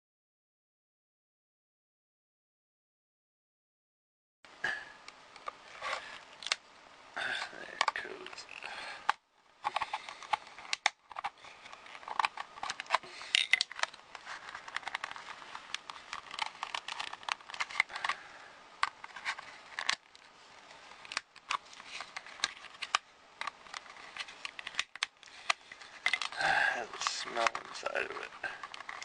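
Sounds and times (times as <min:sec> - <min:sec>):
plastic case cracking apart: 0:09.7 - 0:18.2, 0:20.9 - 0:26.4.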